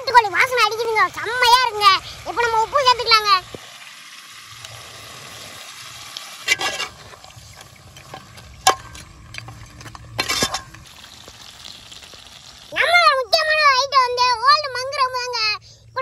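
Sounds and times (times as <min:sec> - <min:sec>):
faint sizzle: 0:00.0 - 0:16.0
utensil scraping pot: 0:06.4 - 0:10.9
spoon stirring in pot: 0:06.5 - 0:10.8.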